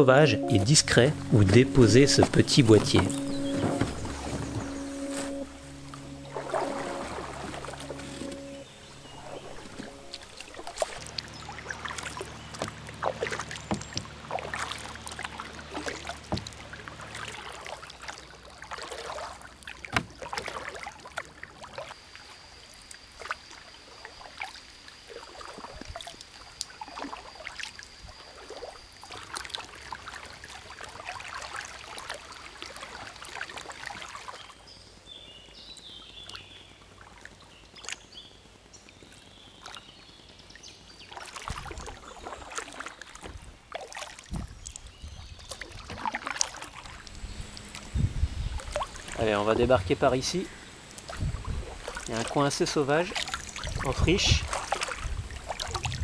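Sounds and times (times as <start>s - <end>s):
bird chirps: 0.2s - 12.8s
paddle strokes in water: 0.5s - 22.0s, 22.9s - 34.6s, 41.0s - 56.0s.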